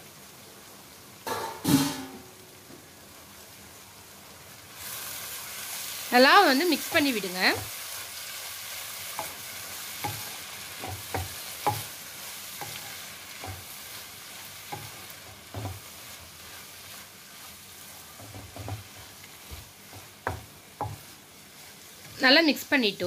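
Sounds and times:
food sizzling in a wok: 0.0s - 23.0s
spatula scraping a pan: 9.1s - 22.3s.

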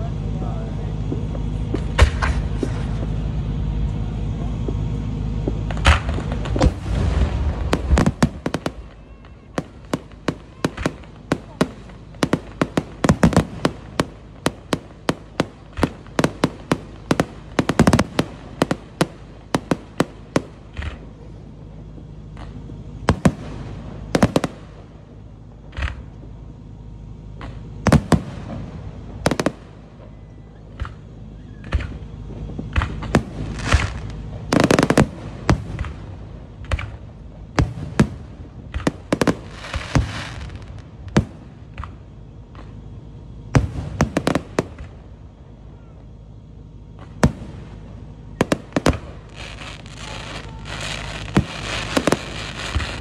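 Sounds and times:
fireworks bangs: 0.0s - 53.0s.

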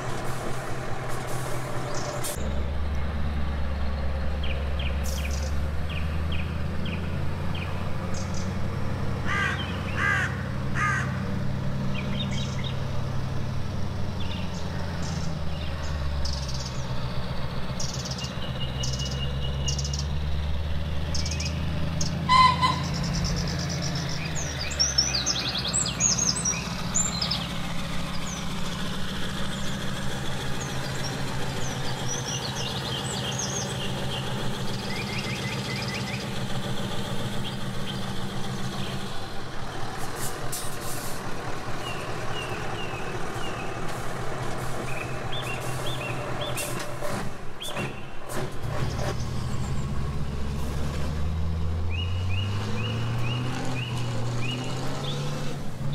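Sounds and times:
small birds chirping: 1.8s - 8.7s, 9.3s - 13.2s, 14.0s - 40.1s, 41.4s - 46.8s, 51.8s - 55.5s
model truck diesel engine revving: 48.3s - 55.9s.

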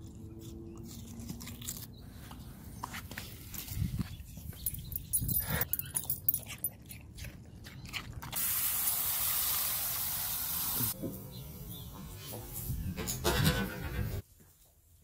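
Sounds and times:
water spraying from hose: 8.4s - 11.0s.

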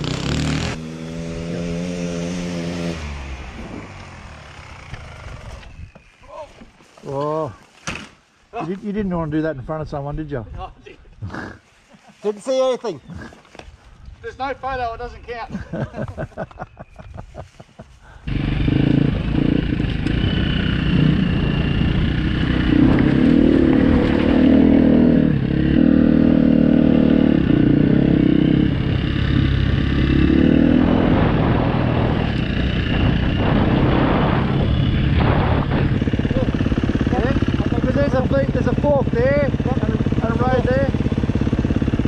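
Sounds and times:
dirt bike engine: 0.0s - 6.2s, 18.0s - 42.0s.

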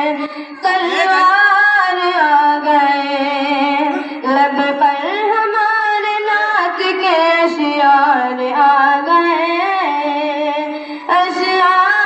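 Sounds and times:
boy singing solo: 0.0s - 5.0s.

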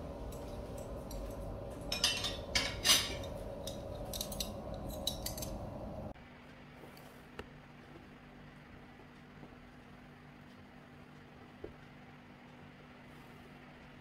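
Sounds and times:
low room hum: 0.0s - 14.0s
dishes and cutlery clinking: 0.3s - 5.6s.

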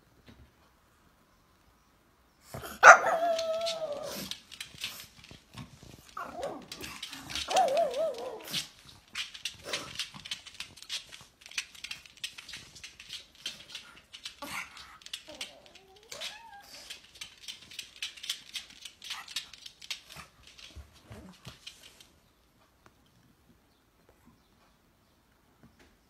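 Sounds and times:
dog barking: 2.6s - 3.3s.

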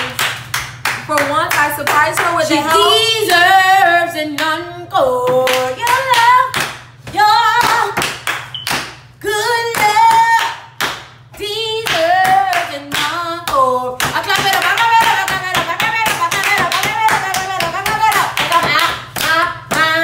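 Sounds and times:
hand claps: 0.0s - 2.3s, 5.5s - 6.9s, 7.6s - 9.0s, 9.7s - 11.2s, 11.8s - 19.9s
woman singing a cappella: 1.1s - 8.0s, 9.2s - 20.0s.

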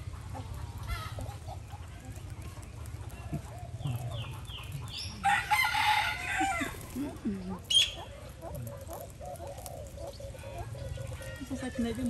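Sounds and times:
parakeets chirping: 0.0s - 12.0s.

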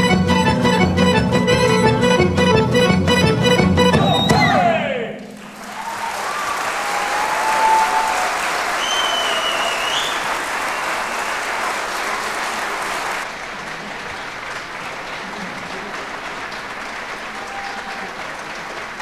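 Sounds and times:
audience applauding: 5.3s - 19.0s.

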